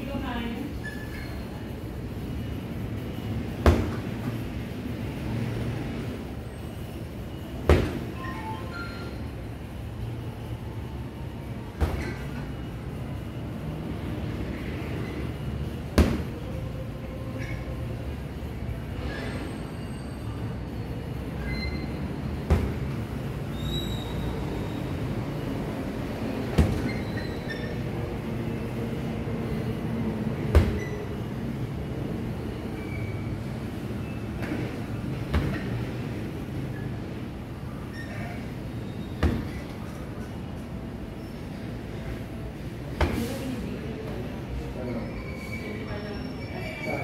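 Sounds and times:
punches thudding on punching bag: 3.6s - 4.0s, 7.6s - 8.1s, 15.9s - 16.4s, 22.4s - 23.0s, 26.5s - 26.9s, 30.5s - 30.8s, 35.2s - 35.7s, 39.2s - 39.6s.

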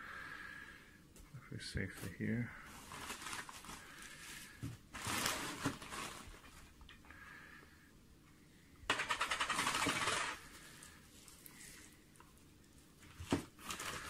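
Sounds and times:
packaging crinkling: 2.7s - 6.8s, 8.9s - 11.5s, 13.0s - 14.0s.

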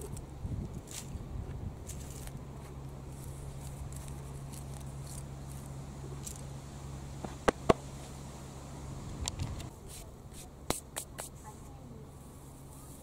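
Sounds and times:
dry twigs rustling: 0.0s - 8.3s
low hum: 0.0s - 10.7s.

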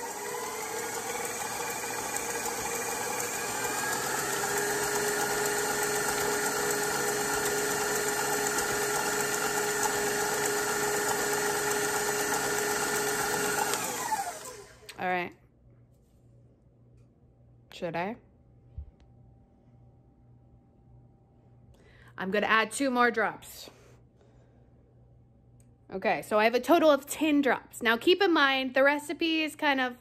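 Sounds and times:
stand mixer beating dough: 0.0s - 14.9s.

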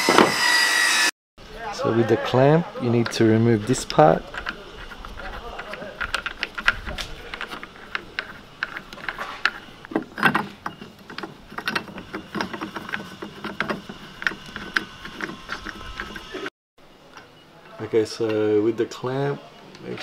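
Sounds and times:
plastic parts clicking and rattling: 3.0s - 16.4s.

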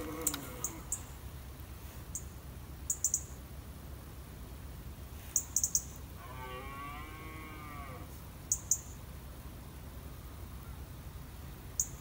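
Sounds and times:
faint low outdoor rumble: 0.0s - 12.0s
very high chirps: 5.4s - 6.0s.

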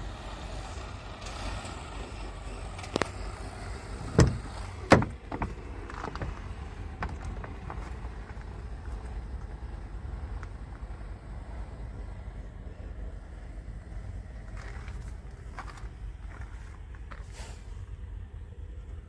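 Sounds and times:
low engine rumble: 0.0s - 19.0s
truck door clunks: 3.9s - 8.0s
truck door latch click: 4.1s - 5.6s.

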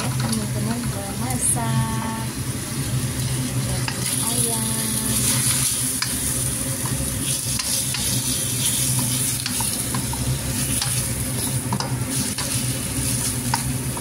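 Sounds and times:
chicken sizzling in a wok: 0.0s - 14.0s
spatula clicking and scraping pan: 3.2s - 4.3s, 5.2s - 14.0s.

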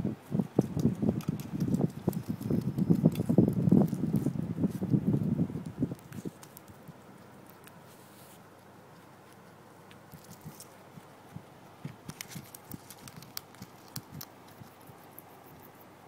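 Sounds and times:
faint steady hiss: 0.0s - 16.0s
guinea pig chewing grass: 0.0s - 16.0s.

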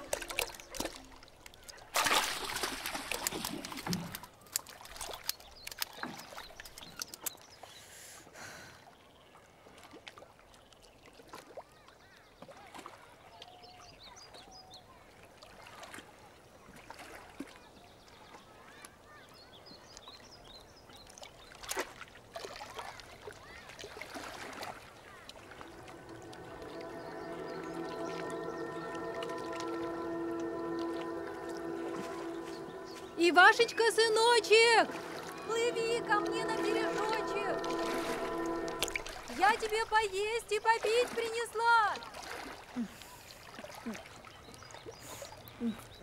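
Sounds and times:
water dripping: 0.0s - 7.6s
water splashing in a rowboat: 0.0s - 7.8s, 8.8s - 46.0s.

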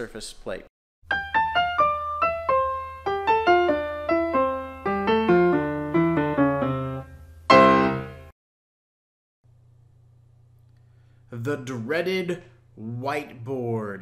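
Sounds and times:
piano jingle: 1.1s - 8.3s
low steady hum: 9.5s - 14.0s.

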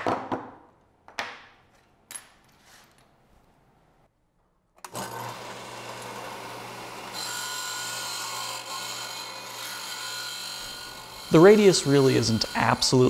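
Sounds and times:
sander motor hum: 4.8s - 13.0s
disc sander grinding metal: 4.9s - 13.0s.

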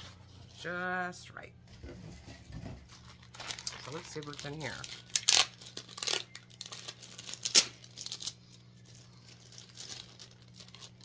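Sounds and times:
packaging tearing and crinkling: 3.0s - 11.0s.

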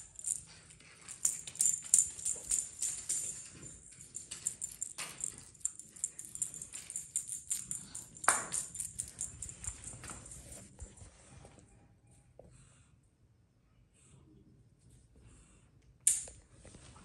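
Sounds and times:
small bell jingling: 0.0s - 10.7s.

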